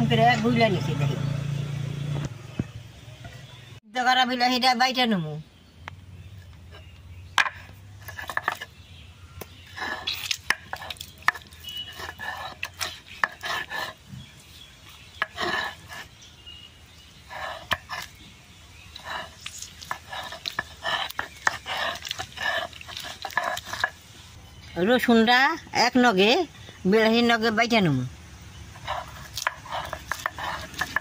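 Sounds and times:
stone roller crushing tomatoes: 0:06.4 - 0:16.3, 0:17.0 - 0:24.1, 0:28.6 - 0:31.0
stone knocking on stone: 0:07.4 - 0:08.7.

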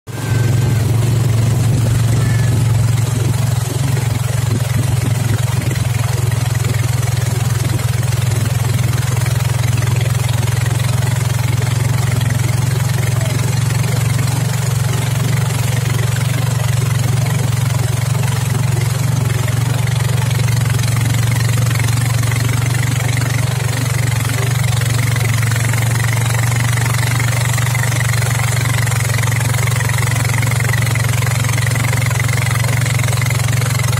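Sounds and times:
boat motor droning: 0:00.1 - 0:33.9
water rushing: 0:00.1 - 0:33.9
wind: 0:00.1 - 0:33.9.

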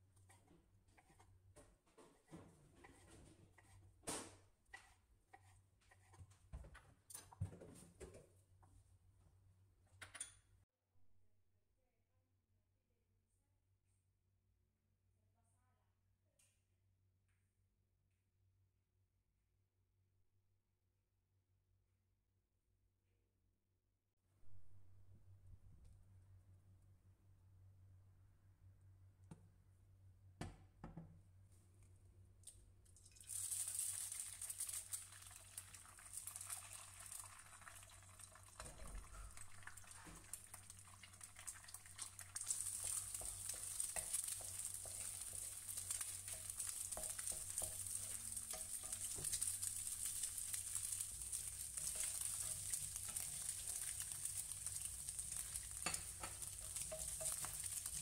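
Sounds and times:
wooden spatula scraping pan: 0:00.1 - 0:06.6, 0:42.7 - 0:49.7, 0:51.4 - 0:58.0
egg sizzling in frying pan: 0:33.1 - 0:58.0.

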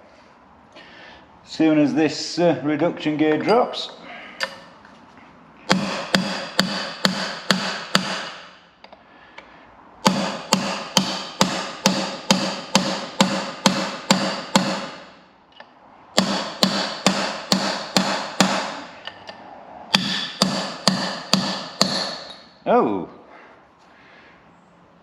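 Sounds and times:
hammer striking metal punch: 0:05.7 - 0:08.7, 0:10.0 - 0:15.2, 0:16.1 - 0:22.6.

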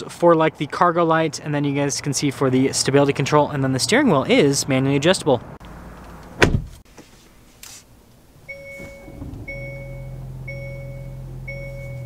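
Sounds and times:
car engine idling: 0:08.0 - 0:12.0
two-tone warning chime: 0:08.5 - 0:12.0.

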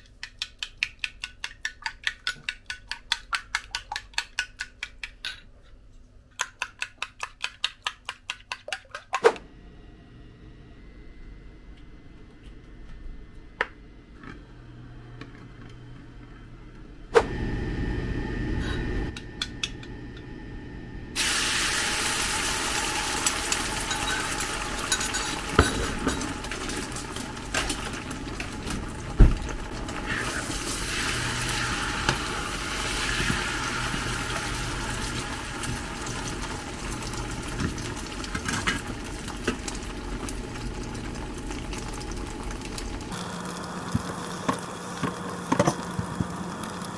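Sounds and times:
eggs sizzling in hot oil: 0:21.2 - 0:46.9.

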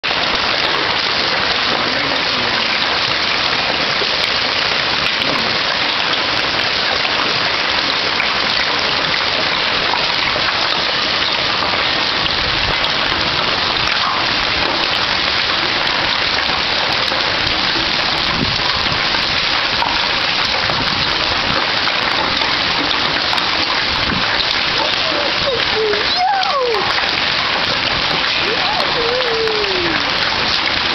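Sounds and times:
hailstones hitting roof and pavement: 0:00.0 - 0:30.9.

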